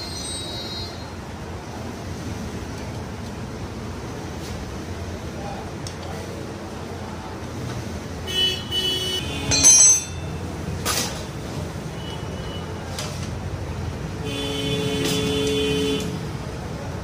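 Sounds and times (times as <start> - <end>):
street traffic rumbling: 0.0 - 17.0
vehicle horns honking: 8.3 - 10.4, 14.2 - 16.2.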